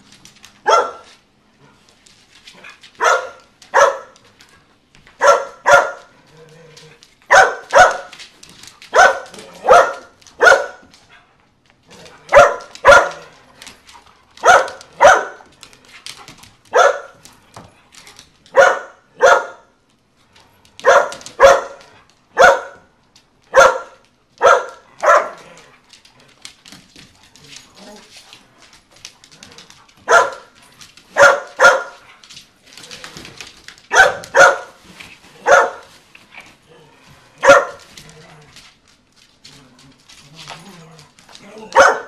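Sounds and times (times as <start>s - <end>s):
dog barking: 0.6s - 1.1s, 3.0s - 4.2s, 5.2s - 6.1s, 7.3s - 8.1s, 8.9s - 10.8s, 12.3s - 13.3s, 14.4s - 15.4s, 16.7s - 17.2s, 18.5s - 19.7s, 20.8s - 22.9s, 23.5s - 25.4s, 30.1s - 30.5s, 31.2s - 32.0s, 33.9s - 34.8s, 35.4s - 35.9s, 37.4s - 37.8s, 41.7s - 42.0s.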